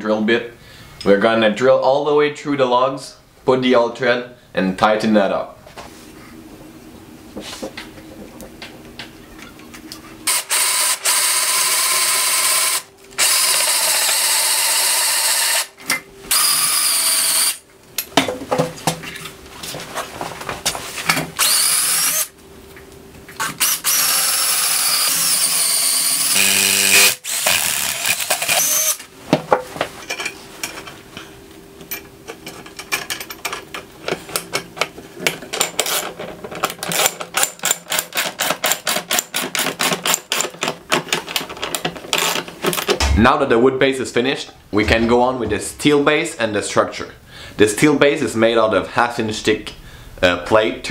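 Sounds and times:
power drill boring through timber: 0:10.3 - 0:15.7, 0:16.3 - 0:17.6, 0:21.4 - 0:22.3, 0:23.5 - 0:29.0.

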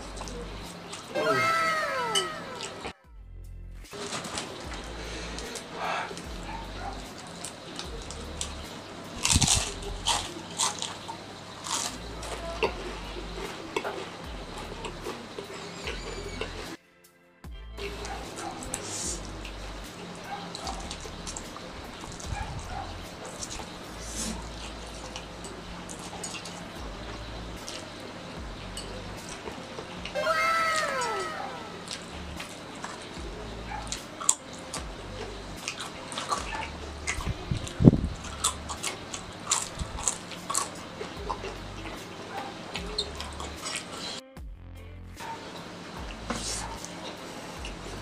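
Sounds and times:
steady hiss: 0:03.9 - 0:16.8, 0:17.8 - 0:44.2
chips crunching while chewed: 0:04.0 - 0:06.4, 0:07.0 - 0:16.6, 0:19.9 - 0:27.9, 0:28.8 - 0:33.2, 0:33.8 - 0:44.2.

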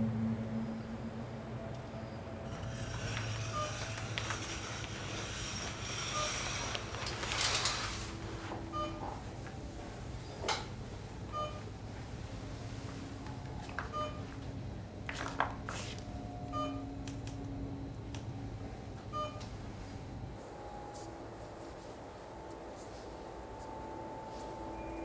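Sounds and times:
low hum of room equipment: 0:00.0 - 0:25.0
patient monitor beeping: 0:02.5 - 0:12.0, 0:13.2 - 0:14.5, 0:16.1 - 0:21.2.

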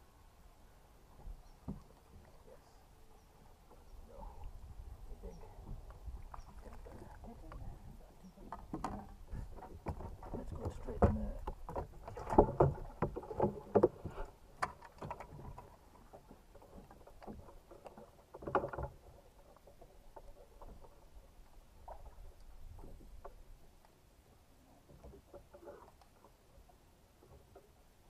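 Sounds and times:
knocks and clatter of handling: 0:08.5 - 0:21.0.

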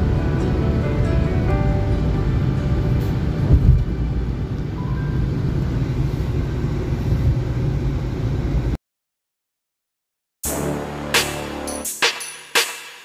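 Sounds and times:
road and wind noise in car: 0:00.0 - 0:08.8.

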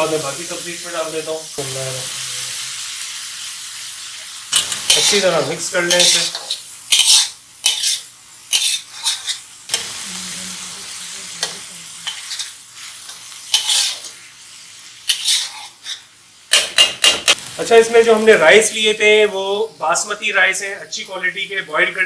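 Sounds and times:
food sizzling: 0:00.0 - 0:22.0
metal spatula scraping a wok: 0:04.6 - 0:17.4.

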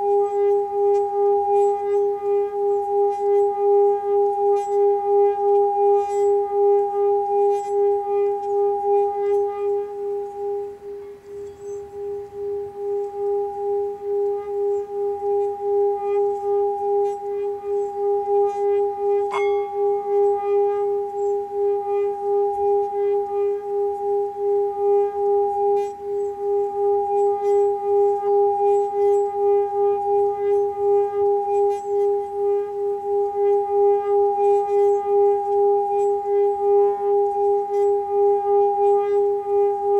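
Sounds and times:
singing bowl steady tone: 0:00.0 - 0:39.9
mallet clinking on bowl rim: 0:19.3 - 0:20.0.

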